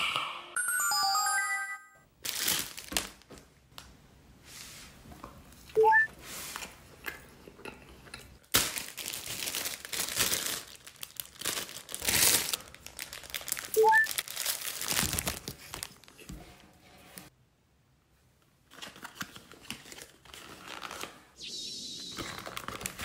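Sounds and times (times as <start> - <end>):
plastic wrapping crinkling: 2.2 - 3.5, 8.4 - 16.4, 22.2 - 23.0.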